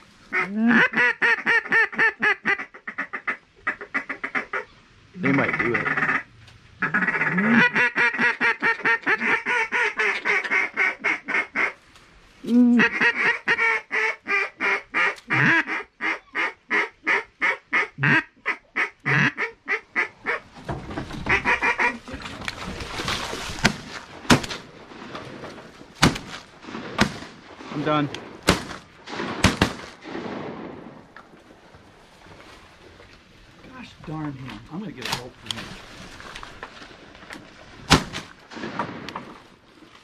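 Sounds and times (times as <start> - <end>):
duck quacking rapidly: 0.3 - 6.2, 6.8 - 11.8, 12.8 - 20.4, 21.3 - 22.0.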